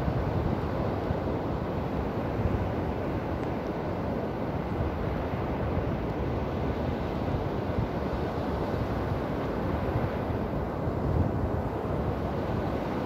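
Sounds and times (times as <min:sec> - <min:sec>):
waves breaking on beach: 0:00.0 - 0:13.0.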